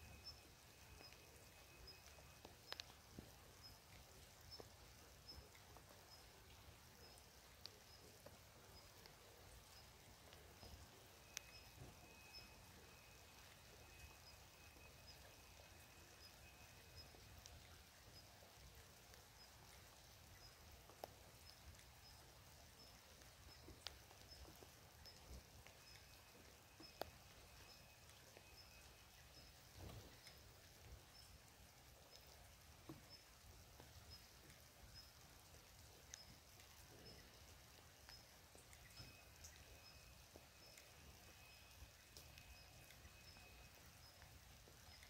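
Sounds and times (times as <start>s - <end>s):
thin high steady tone: 0.0s - 18.4s, 21.4s - 35.2s, 36.1s - 45.0s
light rain hissing: 0.0s - 45.0s
single raindrops landing: 0.0s - 45.0s.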